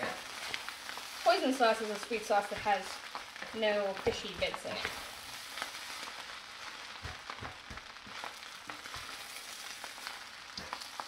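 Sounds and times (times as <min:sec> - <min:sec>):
rice sizzling in a pan: 0:00.0 - 0:11.0
spoon knocking and scraping pan: 0:06.6 - 0:09.6.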